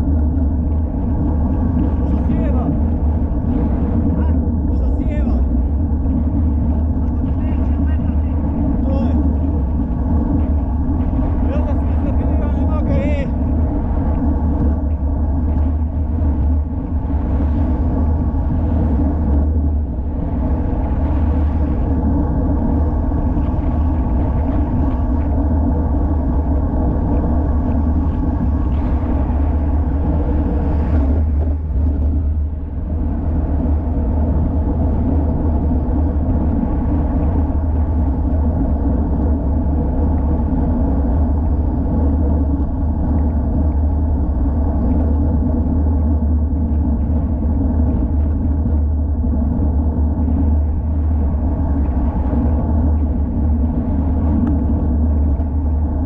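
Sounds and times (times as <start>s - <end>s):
wind rumble on microphone: 0.0s - 56.0s.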